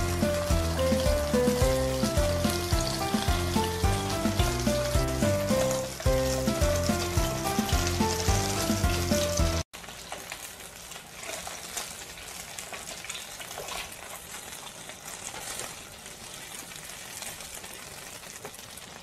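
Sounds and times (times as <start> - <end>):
background music with beat: 0.0 - 9.6
meat sizzling in a frying pan: 0.0 - 19.0.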